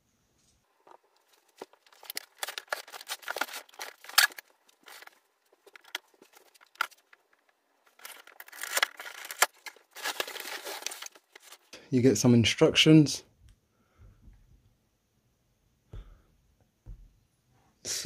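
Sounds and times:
cardboard box being opened: 0:01.3 - 0:07.1, 0:08.0 - 0:11.6.

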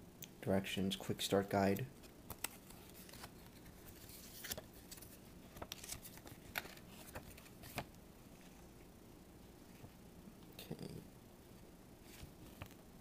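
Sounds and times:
paper rustling and clicking: 0:02.3 - 0:07.9.

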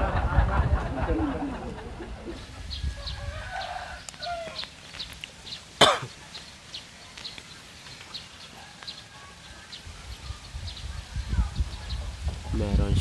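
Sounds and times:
person coughing: 0:05.8 - 0:06.1.

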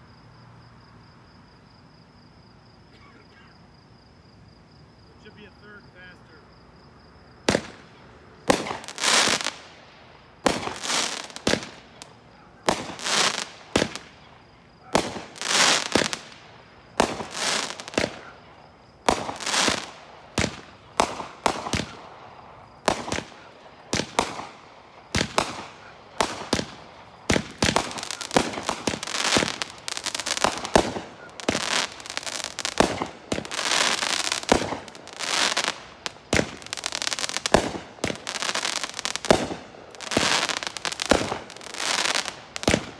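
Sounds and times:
firework shells bursting: 0:07.4 - 0:42.9
firework launch bangs: 0:07.5 - 0:09.6, 0:10.4 - 0:14.2, 0:14.8 - 0:18.4, 0:19.0 - 0:22.1, 0:22.8 - 0:42.9.

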